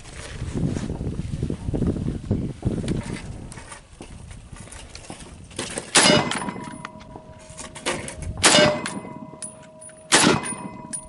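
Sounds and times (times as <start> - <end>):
bullet clanging on steel plate: 5.9 - 11.0
rifle shots: 5.9 - 11.0.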